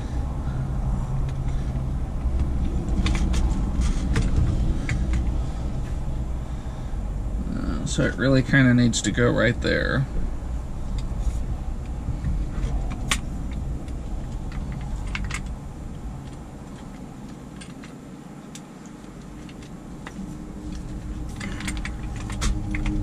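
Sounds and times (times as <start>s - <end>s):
low rumble: 0.0s - 18.1s, 19.1s - 23.0s
metal parts clicking and clinking: 12.6s - 15.6s, 16.2s - 23.0s.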